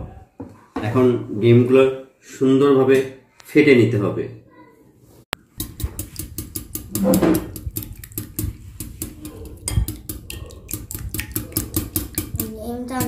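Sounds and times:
whisk clicking against glass bowl: 5.5 - 13.0.

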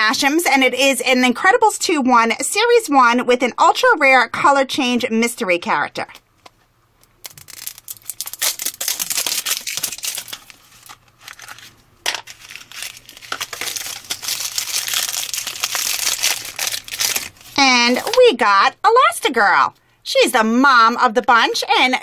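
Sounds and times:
packaging crinkling and tearing: 7.0 - 18.2.

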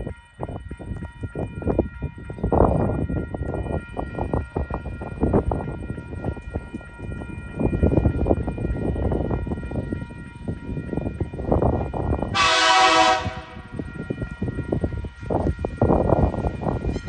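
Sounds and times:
train rumble: 0.0 - 17.0
train horn blast: 12.3 - 13.7.

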